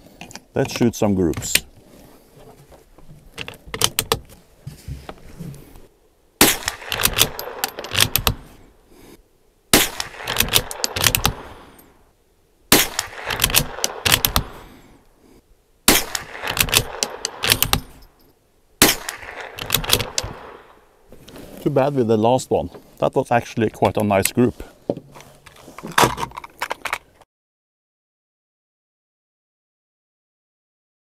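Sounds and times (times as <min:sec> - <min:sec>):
rifle bolt metallic clicks: 0:03.3 - 0:04.2, 0:06.4 - 0:08.5, 0:09.9 - 0:11.4, 0:12.8 - 0:14.5, 0:15.9 - 0:18.2, 0:18.8 - 0:20.5
rifle shots: 0:06.4 - 0:08.5, 0:09.7 - 0:11.6, 0:12.7 - 0:14.6, 0:15.9 - 0:18.0, 0:18.8 - 0:20.7.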